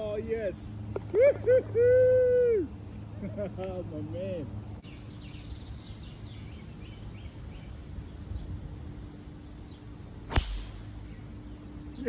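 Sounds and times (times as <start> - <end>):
golf club striking ball: 10.3 - 11.1.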